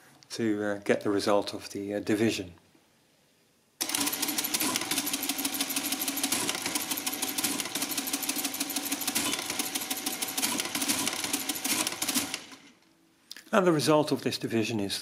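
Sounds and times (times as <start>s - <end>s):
calculator mechanism clatter: 3.8s - 12.8s.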